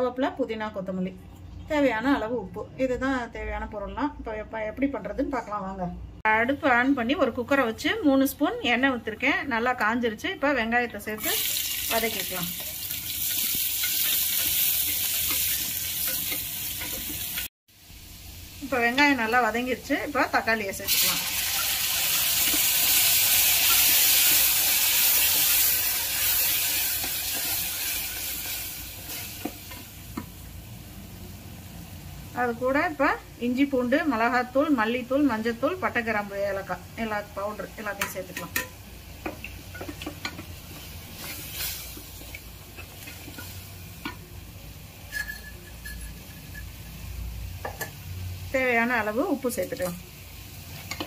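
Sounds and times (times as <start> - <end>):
tomato sizzling in hot oil: 10.5 - 51.0
spatula scraping and tapping a pan: 12.6 - 17.5, 38.0 - 44.3, 45.1 - 47.0, 47.6 - 48.0, 50.8 - 51.0.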